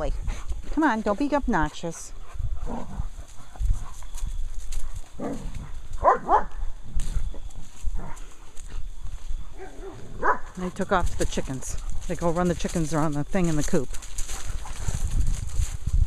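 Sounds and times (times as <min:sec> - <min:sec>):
footsteps in fallen leaves: 0:03.2 - 0:16.0
dog barking: 0:05.2 - 0:06.6, 0:09.6 - 0:10.6.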